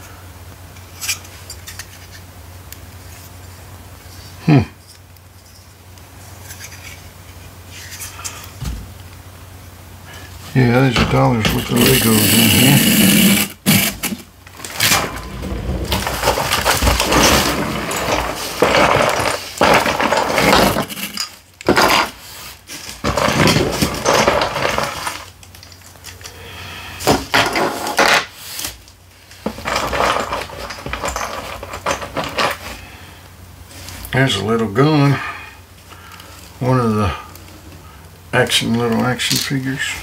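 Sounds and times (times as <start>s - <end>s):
plastic bricks clattering: 11.0s - 22.2s, 22.9s - 26.4s, 29.4s - 32.8s.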